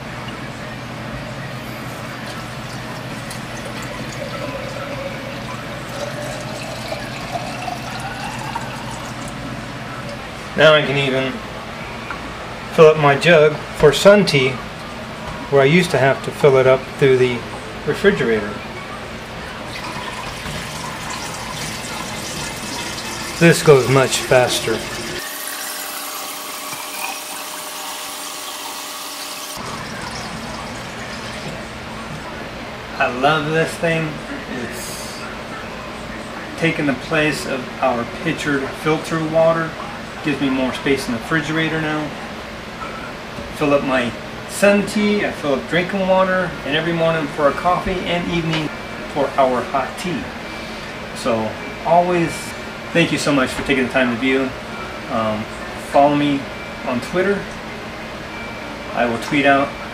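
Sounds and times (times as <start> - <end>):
water filling a glass jar: 1.9 - 9.4, 19.5 - 31.7.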